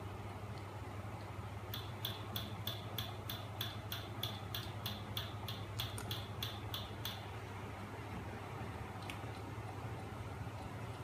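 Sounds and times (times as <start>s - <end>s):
sharp mechanical ticks: 1.7s - 7.3s.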